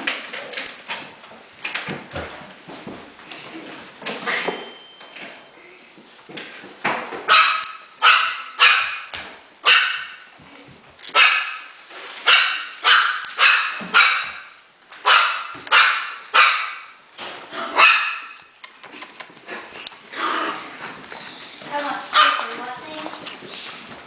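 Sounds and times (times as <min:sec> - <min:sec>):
puppies barking high-pitched: 0:07.3 - 0:10.2, 0:11.2 - 0:11.7, 0:12.3 - 0:17.0, 0:17.6 - 0:18.4, 0:22.0 - 0:22.6.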